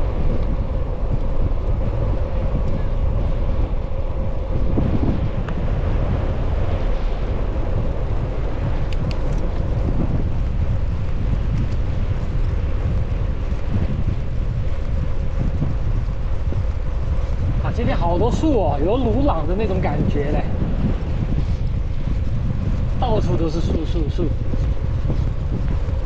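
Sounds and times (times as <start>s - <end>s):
wind buffeting microphone: 0.0s - 26.0s
faint ticks: 8.7s - 9.7s.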